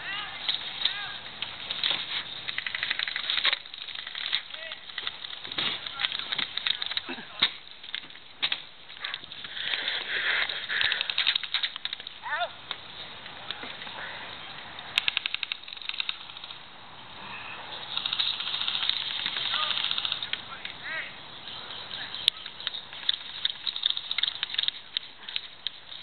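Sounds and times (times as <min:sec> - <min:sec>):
airsoft guns firing: 0:17.9 - 0:20.3.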